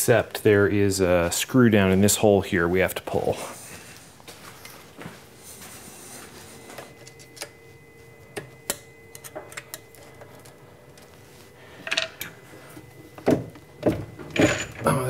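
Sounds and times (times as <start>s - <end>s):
faint steady hum: 0.0s - 15.0s
metal clatter: 14.2s - 15.0s.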